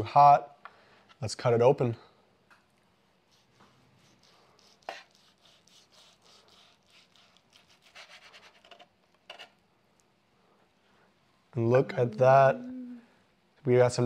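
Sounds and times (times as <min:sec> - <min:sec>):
knife sawing through patty: 0:03.3 - 0:08.7.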